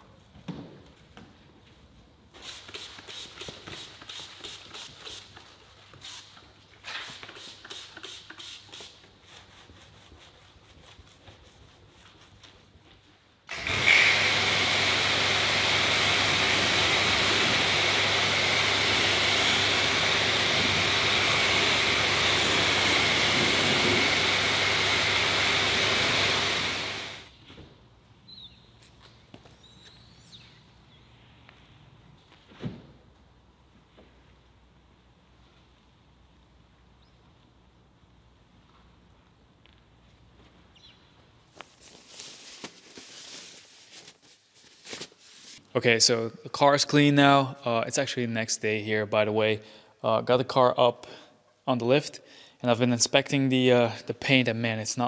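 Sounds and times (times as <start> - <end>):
spray hissing on bodywork: 2.4 - 6.4, 7.0 - 11.2
hand wiping wet car paint: 2.4 - 13.2
pressure washer motor humming: 13.5 - 27.3.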